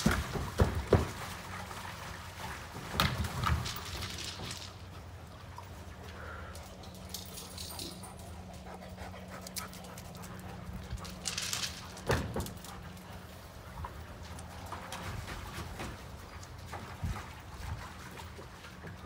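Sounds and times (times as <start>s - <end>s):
dogs panting and whimpering: 5.6s - 14.7s.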